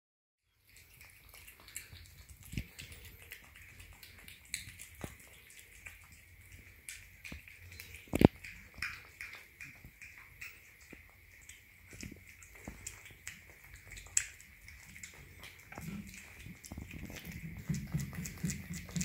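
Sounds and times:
cat chewing and licking: 0:00.5 - 0:19.0.

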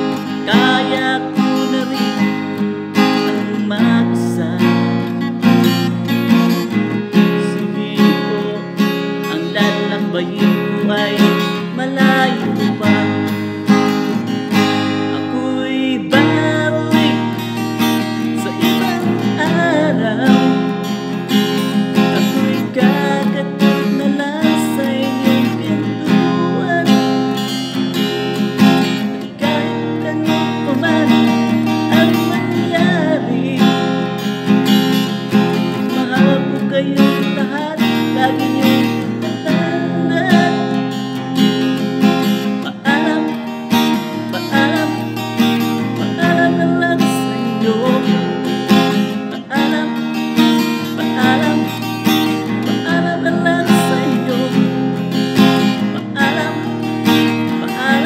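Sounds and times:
man singing: 0:00.0 - 0:58.0
strummed acoustic guitar: 0:00.0 - 0:58.0.

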